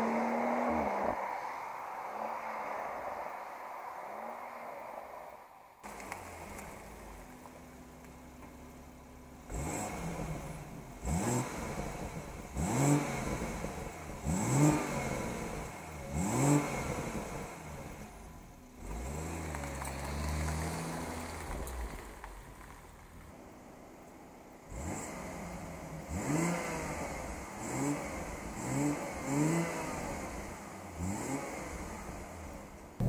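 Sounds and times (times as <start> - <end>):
car engine idling: 5.8 - 14.4
car engine revving: 9.1 - 18.2, 24.6 - 32.8.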